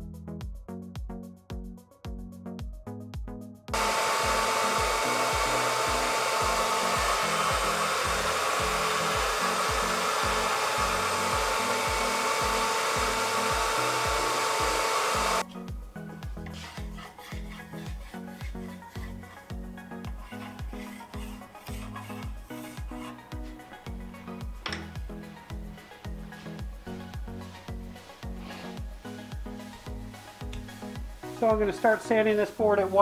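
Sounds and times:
music with a steady beat: 0.0s - 32.3s
router whining while cutting wood: 3.8s - 15.4s.

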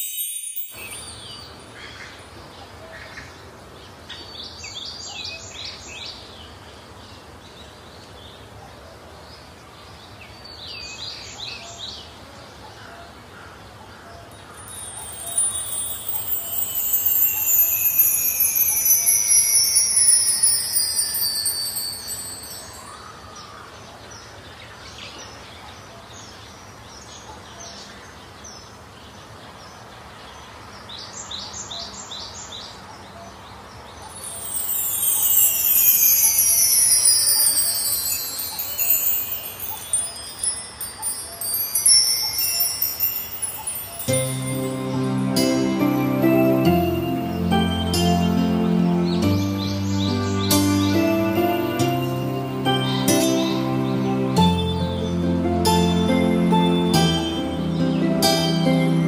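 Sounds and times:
wind chimes tinkling: 0.0s - 2.2s, 14.3s - 23.7s, 34.0s - 59.0s
steady hiss: 14.4s - 23.1s, 34.1s - 59.0s
long falling high tones: 14.6s - 23.1s, 34.1s - 59.0s.

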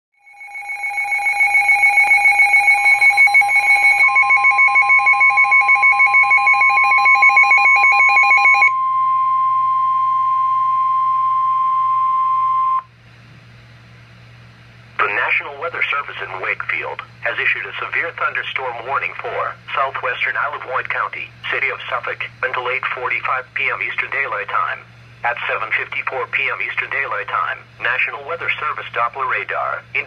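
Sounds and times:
fast two-pitch beeping: 0.2s - 12.9s
steady alarm tone: 0.2s - 12.9s.

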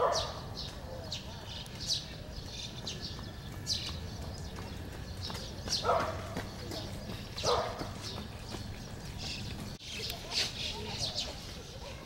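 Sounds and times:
dog bark: 0.0s - 0.5s, 5.8s - 6.4s, 7.4s - 8.0s, 10.2s - 12.0s
small birds chirping: 0.0s - 12.0s.

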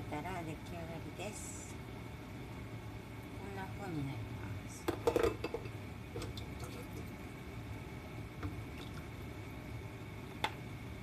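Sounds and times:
steady low hum: 0.0s - 11.0s
pot clicking and knocking: 4.9s - 6.8s.

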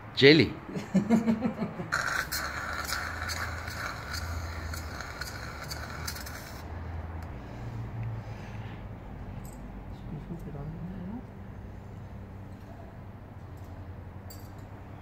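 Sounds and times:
fluid extractor sucking hiss: 1.9s - 7.4s.

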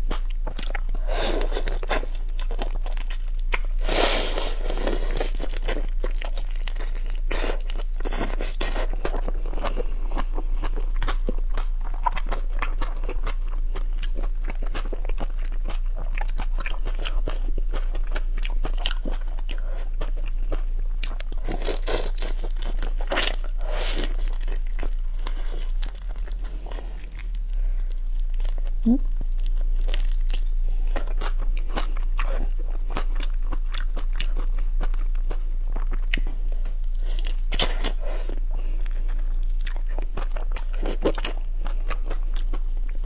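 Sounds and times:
chewing: 0.1s - 43.0s.

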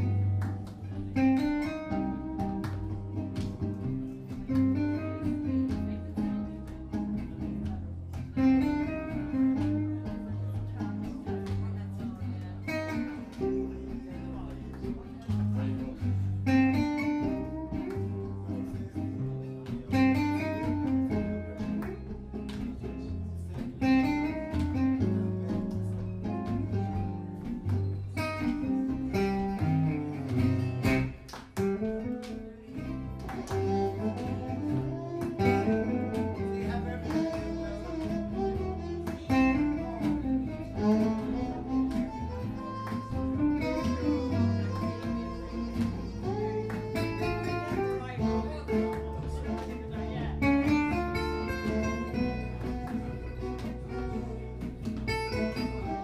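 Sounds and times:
double bass: 0.0s - 56.0s
lead acoustic guitar melody: 0.0s - 56.0s
rhythm guitar chords: 0.0s - 56.0s
violin bowed notes: 33.1s - 56.0s.

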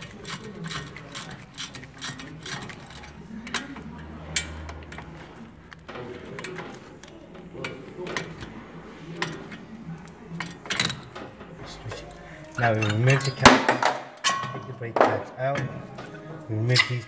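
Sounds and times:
hand ratchet clicking: 0.0s - 5.8s.

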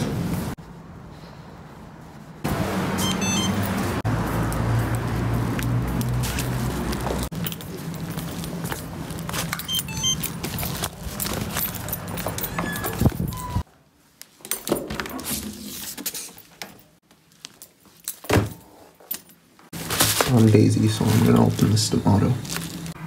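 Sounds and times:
paper mailer rustling: 6.1s - 13.2s, 19.7s - 23.0s
keys jangling: 7.0s - 13.6s, 17.6s - 19.5s.

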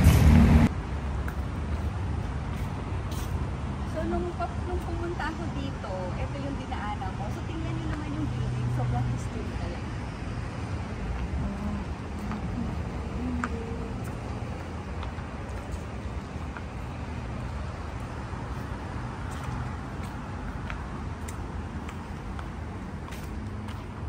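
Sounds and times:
steady low rumble: 0.0s - 4.0s.

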